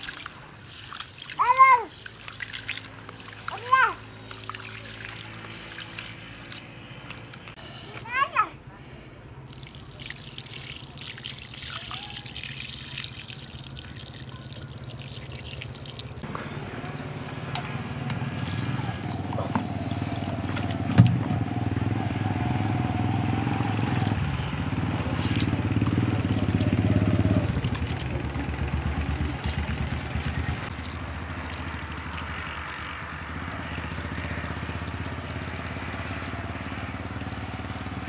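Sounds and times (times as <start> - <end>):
water splashing into plastic bowl: 0.0 - 6.6, 9.5 - 16.2, 25.0 - 26.8, 27.4 - 28.1, 30.7 - 33.5
low engine-like rumble: 11.8 - 38.0.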